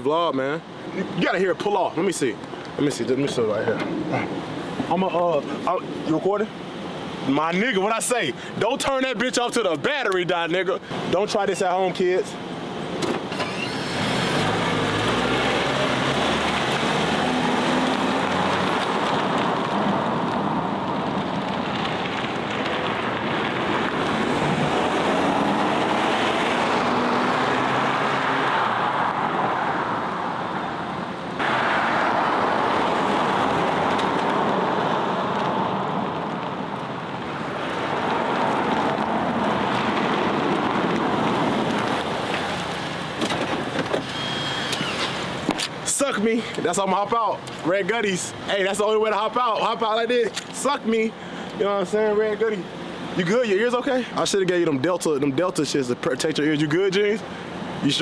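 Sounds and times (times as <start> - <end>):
car engine and exhaust accelerating: 12.9 - 45.5.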